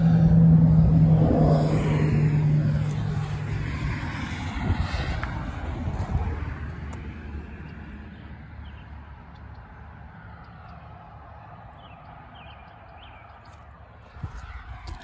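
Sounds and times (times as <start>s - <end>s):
wind rumble on microphone: 0.0s - 7.5s, 14.1s - 15.0s.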